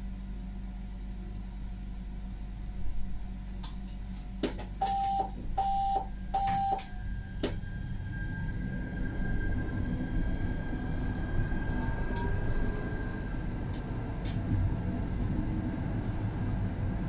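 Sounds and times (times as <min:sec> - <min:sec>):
tram equipment humming: 0:00.0 - 0:17.0
short electronic beeps: 0:04.8 - 0:06.9.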